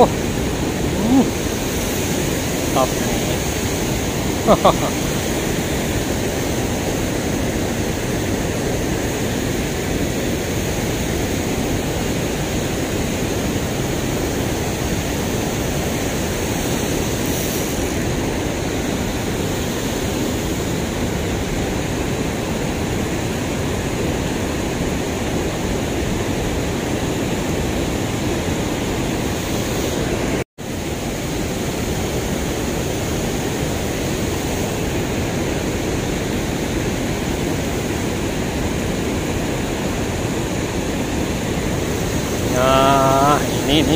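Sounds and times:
river water rushing over weir: 0.0 - 43.9.

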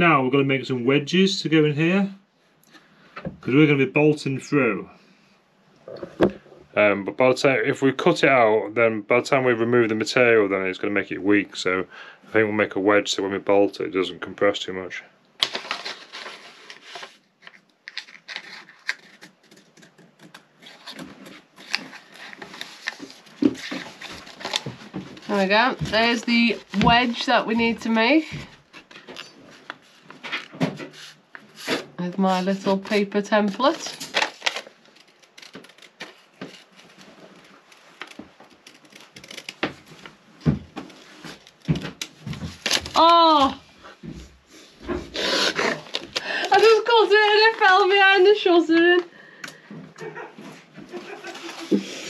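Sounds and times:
paper rustling and crinkling: 15.4 - 44.2, 44.8 - 49.0, 51.0 - 52.0
scissors snipping paper: 32.9 - 40.0.

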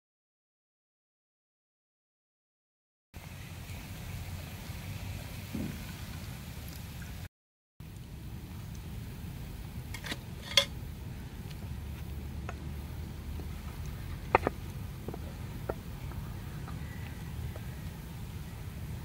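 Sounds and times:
steady low hum: 7.8 - 19.0
chopsticks tapping metal bowl: 10.0 - 10.7.

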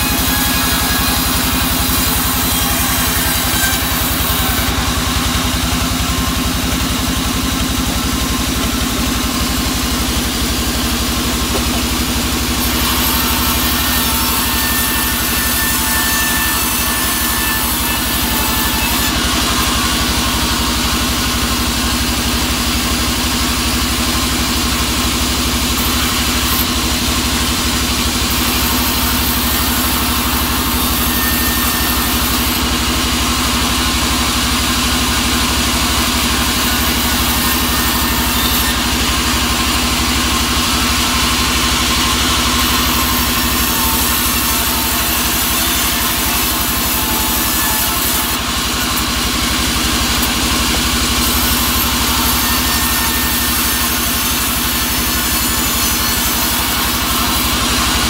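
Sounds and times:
band sawmill droning: 0.0 - 58.0.

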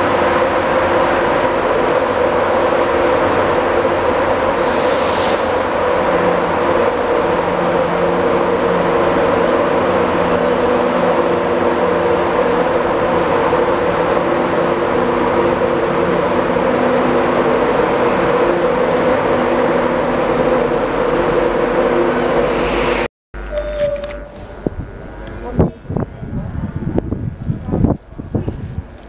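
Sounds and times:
electric train drone: 0.0 - 29.0
air hiss: 4.4 - 5.7.

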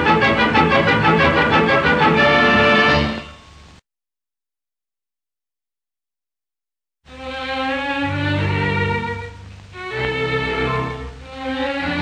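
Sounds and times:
background music: 0.0 - 3.7, 7.1 - 12.0.

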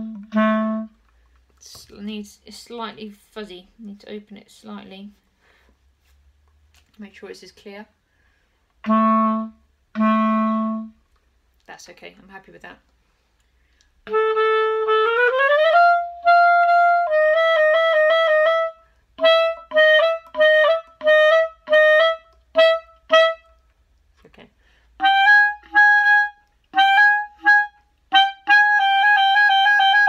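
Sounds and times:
clarinet playing notes: 0.0 - 1.0, 8.8 - 11.0, 14.0 - 23.7, 25.0 - 30.0.

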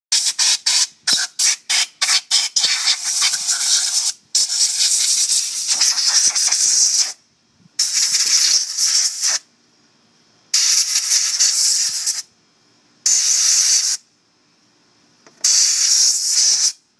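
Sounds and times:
air blow gun hissing: 0.1 - 7.2, 7.8 - 9.5, 10.5 - 12.3, 13.1 - 14.0, 15.4 - 16.8.

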